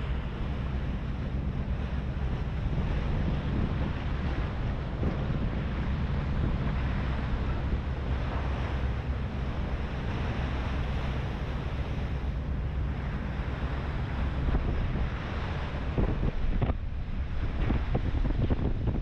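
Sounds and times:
ferry engine drone: 0.0 - 19.0
water washing along hull: 0.0 - 19.0
wind buffeting microphone: 0.0 - 19.0.

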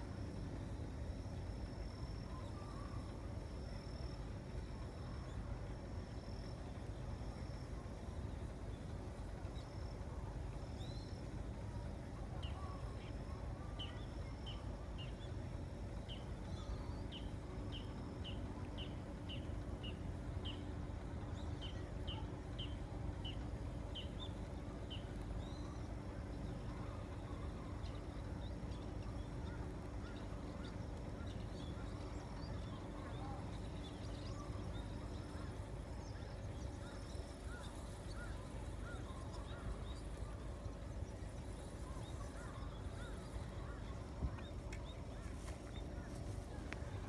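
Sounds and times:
faint low hum: 0.0 - 47.0
steady low rumble: 0.0 - 47.0
bird chirping: 21.3 - 47.0.

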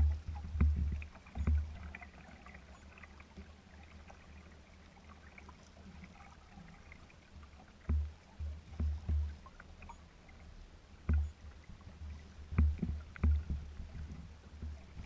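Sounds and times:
low thumps: 0.0 - 1.8, 7.9 - 9.4, 12.5 - 15.0
steady low rumble: 0.0 - 2.0, 10.8 - 15.0
water drips: 0.0 - 4.4, 5.1 - 10.1, 11.0 - 11.4, 12.1 - 15.0
small waves lapping against hull: 0.0 - 15.0.

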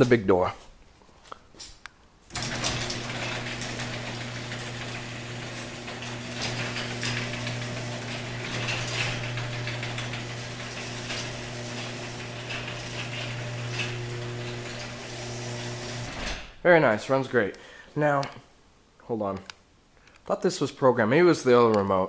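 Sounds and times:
garage door opener motor hum: 2.3 - 16.6
garage door rattling in tracks: 2.3 - 16.6.

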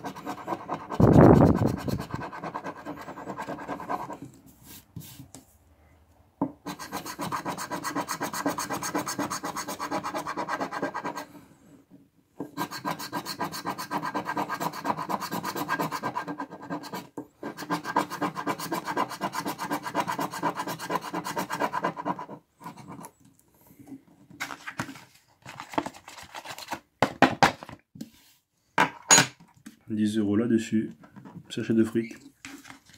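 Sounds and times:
coin scraping scratch ticket: 6.7 - 11.2.

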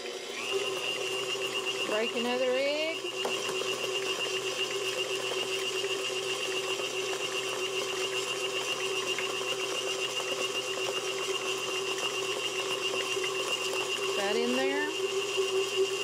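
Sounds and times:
electric stand mixer running: 0.0 - 16.0.

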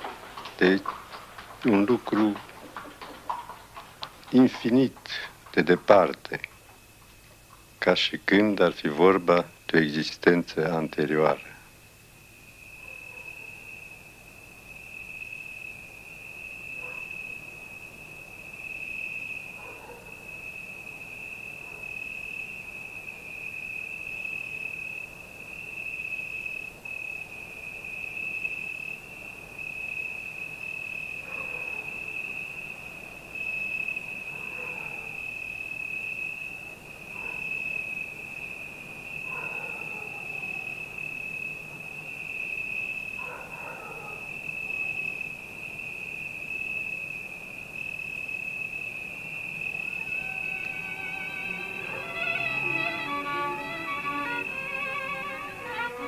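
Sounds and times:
crickets trilling: 0.0 - 56.0
faint short falling calls: 49.8 - 56.0.

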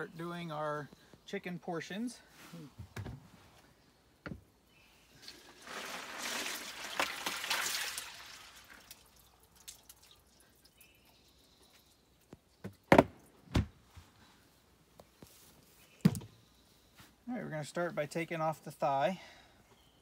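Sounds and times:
water sloshing and dripping: 5.2 - 11.5.

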